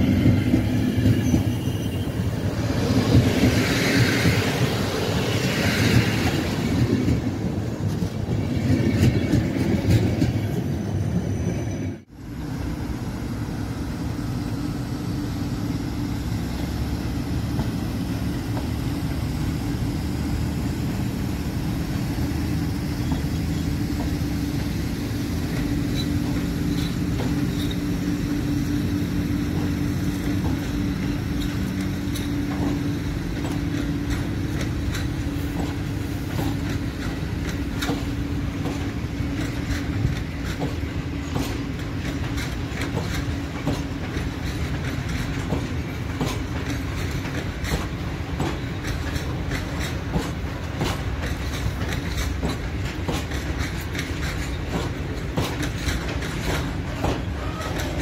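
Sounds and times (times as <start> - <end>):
train rumble: 0.0 - 58.0
wheels clattering over rail joints: 22.5 - 58.0.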